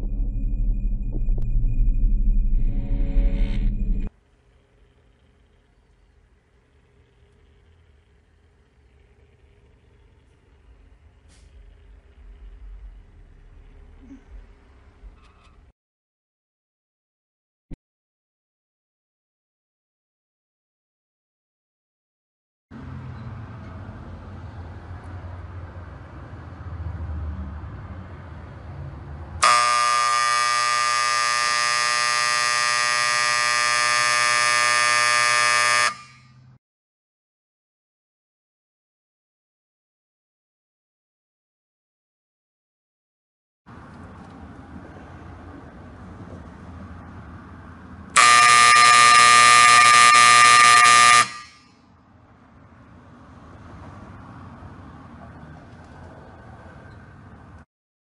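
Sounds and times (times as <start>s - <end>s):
low room hum: 0.0s - 15.7s
electric horn buzzing: 29.4s - 36.5s, 48.2s - 51.8s.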